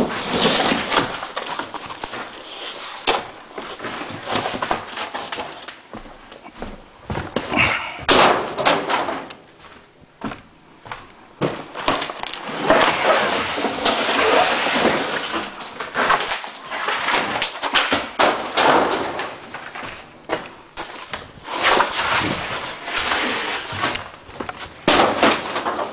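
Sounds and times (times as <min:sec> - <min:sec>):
crackling and scraping of gypsum board: 0:00.0 - 0:25.9
drywall crashing into metal truck bed: 0:08.0 - 0:09.3, 0:24.7 - 0:25.9.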